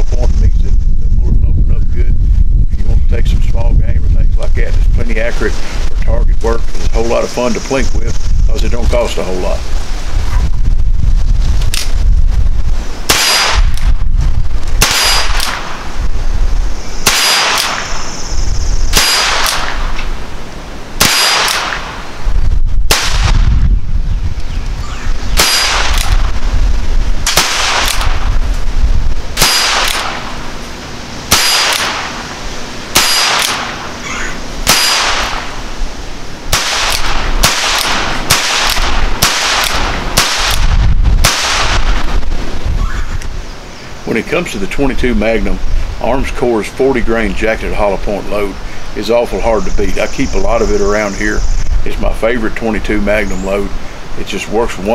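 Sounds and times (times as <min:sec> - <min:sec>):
revolver shots with ringing echo: 0:13.1 - 0:13.8, 0:14.8 - 0:15.9, 0:17.0 - 0:18.2, 0:18.9 - 0:20.2, 0:21.0 - 0:22.2, 0:25.3 - 0:26.3, 0:27.3 - 0:28.4, 0:29.4 - 0:30.5, 0:31.2 - 0:35.6, 0:36.5 - 0:42.0.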